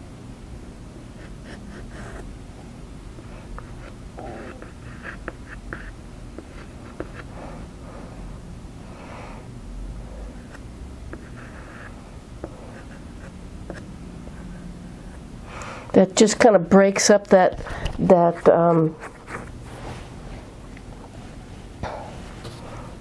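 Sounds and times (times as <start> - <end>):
pastel scratching on paper: 3.6 - 7.3, 18.4 - 19.5.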